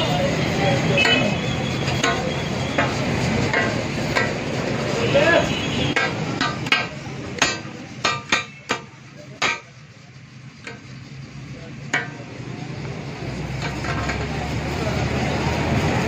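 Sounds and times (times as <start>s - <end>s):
low background din: 0.0s - 15.7s
spatula clacking on steel griddle: 1.0s - 4.9s, 5.9s - 10.0s, 10.6s - 11.2s, 11.8s - 12.5s.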